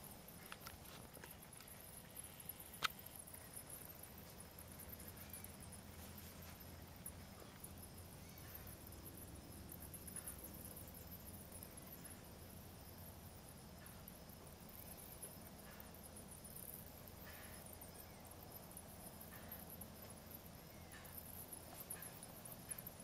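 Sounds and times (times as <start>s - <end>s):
high-pitched hiss: 0.0s - 23.0s.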